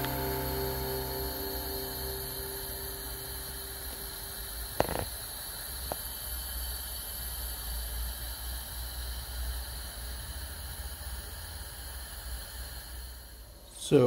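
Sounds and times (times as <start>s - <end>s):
background music: 0.0s - 4.3s.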